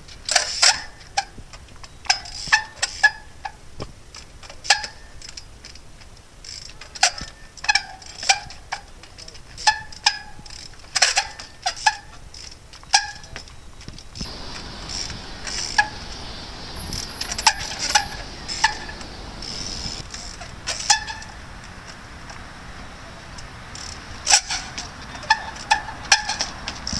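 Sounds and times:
bike striking concrete: 0.0s - 26.9s
steady hiss: 14.2s - 24.4s.

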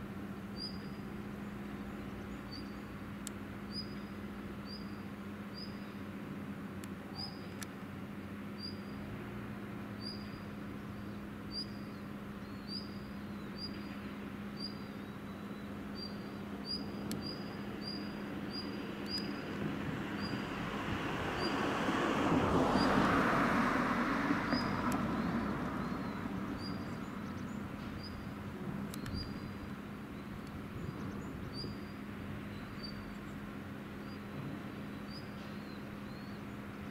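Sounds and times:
low machinery hum: 0.0s - 21.6s, 23.7s - 36.9s
bird chirping: 0.5s - 3.0s, 3.7s - 6.1s, 7.0s - 7.7s, 8.5s - 9.0s, 9.9s - 20.5s, 24.4s - 33.4s, 34.0s - 36.9s.

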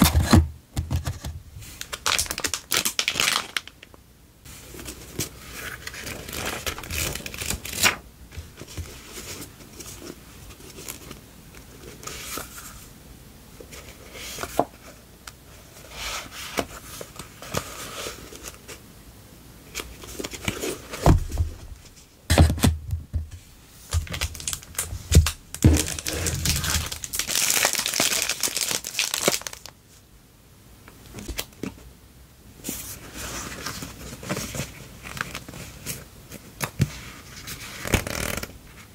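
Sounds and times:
cellophane crinkling: 1.8s - 3.9s, 4.7s - 8.0s, 23.9s - 29.8s
paper cards rustling: 4.6s - 12.8s, 23.9s - 29.7s.

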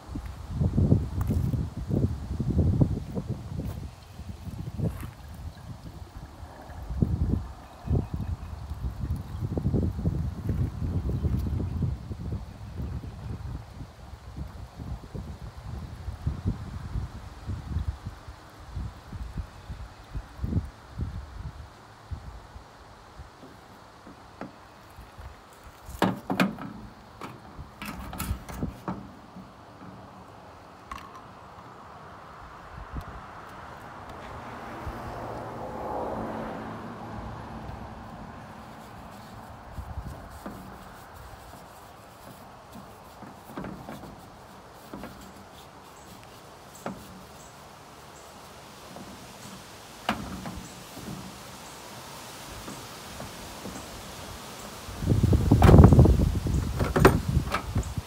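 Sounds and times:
plastic fuel can clattering: 25.9s - 30.1s.

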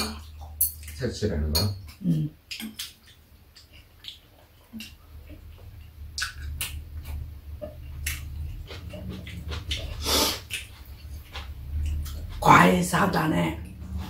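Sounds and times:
chewing: 1.8s - 12.4s.

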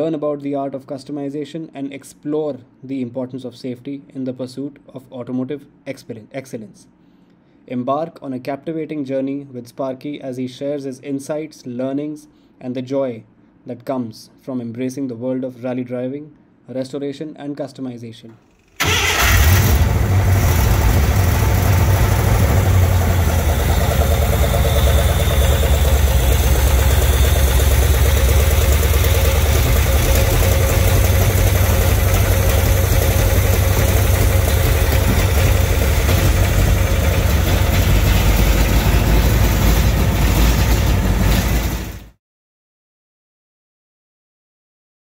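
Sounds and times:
car engine idling: 18.8s - 42.0s.

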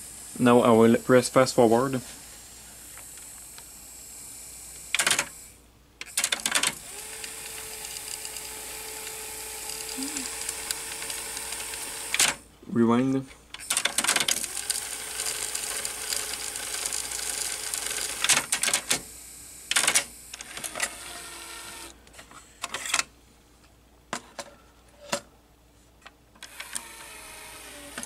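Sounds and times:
cassette tape rewinding whir: 2.2s - 12.4s, 13.6s - 22.0s, 26.4s - 28.0s
sharp mechanical clicks: 4.9s - 5.4s, 6.0s - 8.5s, 9.6s - 12.4s, 13.5s - 19.0s, 19.7s - 21.0s, 26.4s - 28.0s.

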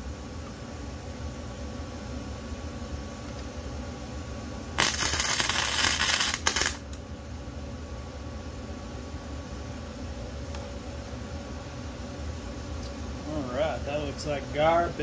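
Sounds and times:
arc welder buzzing: 4.8s - 7.0s.

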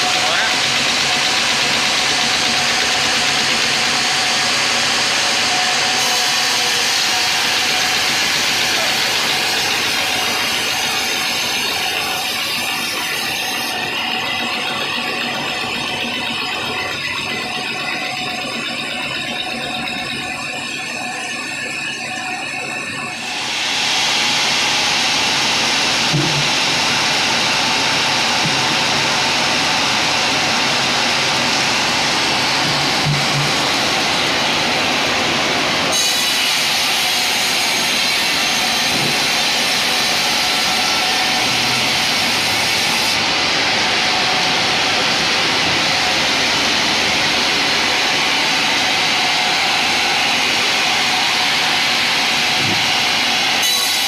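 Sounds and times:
band saw cutting log: 0.0s - 18.9s, 23.2s - 54.0s.

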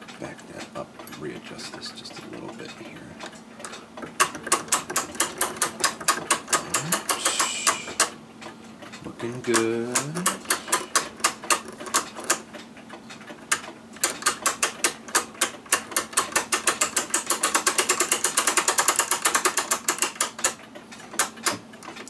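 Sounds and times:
mainspring winder ratchet clicking: 3.6s - 8.2s, 9.4s - 12.4s, 13.5s - 21.6s.

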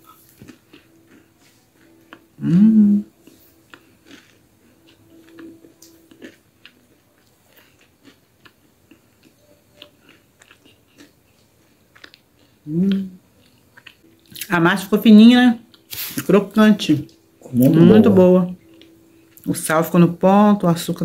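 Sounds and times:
person chewing crisp pastry: 0.0s - 2.5s, 3.1s - 14.5s
short voiced sound rising in pitch: 17.5s - 18.4s.

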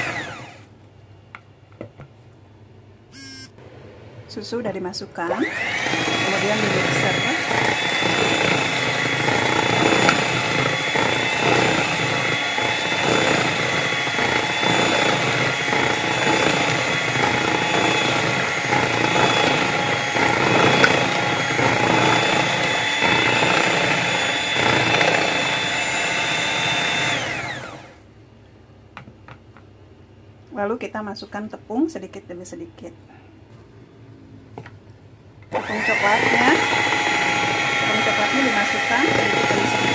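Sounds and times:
electric hand mixer whining: 0.0s - 0.7s, 3.2s - 3.6s, 5.3s - 28.0s, 35.5s - 39.9s.

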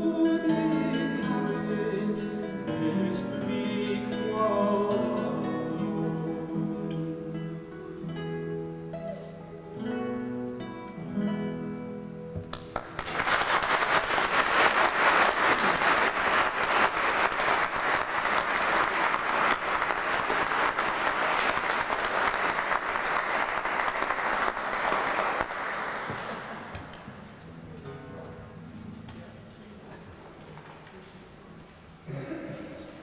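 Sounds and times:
classical guitar notes: 0.0s - 12.8s, 27.2s - 29.8s
audience applause: 12.5s - 27.2s.

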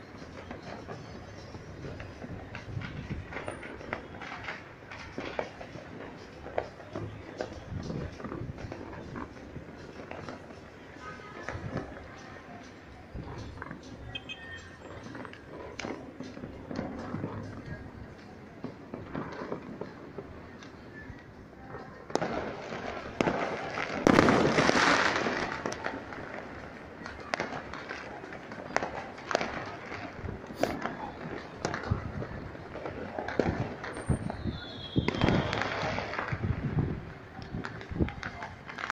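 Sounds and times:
firework crackling burst: 0.0s - 38.9s
fireworks bangs and pops: 0.0s - 38.9s
firework falling whistle: 33.8s - 36.4s.

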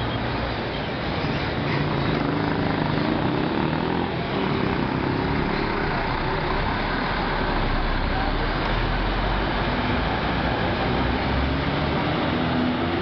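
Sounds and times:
bus engine droning: 0.0s - 13.0s.

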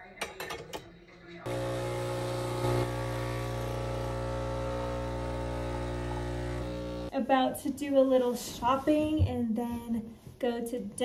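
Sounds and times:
coffee machine pump humming: 1.5s - 7.1s.

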